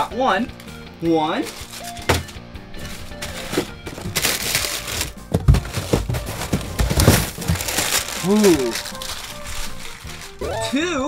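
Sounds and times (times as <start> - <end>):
background music: 0.0 - 11.0
plastic wrappers crinkling: 1.4 - 2.2, 2.8 - 10.7
cardboard boxes rustling: 1.4 - 10.6.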